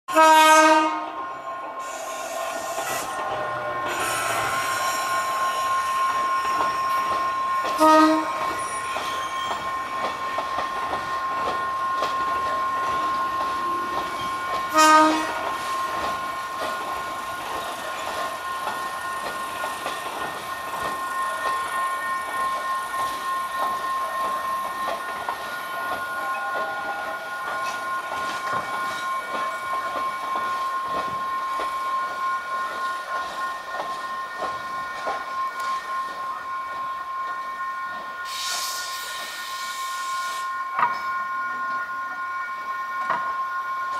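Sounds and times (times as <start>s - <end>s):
train horn blasts: 0.1s - 6.1s, 7.5s - 10.0s, 13.6s - 15.9s
train running noise: 0.1s - 43.9s
steady high-pitched tone: 1.1s - 43.9s.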